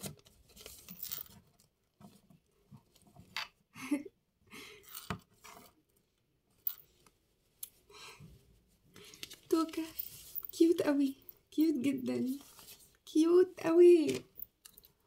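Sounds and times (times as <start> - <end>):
plastic doll rustling and clicking: 8.9 - 10.7.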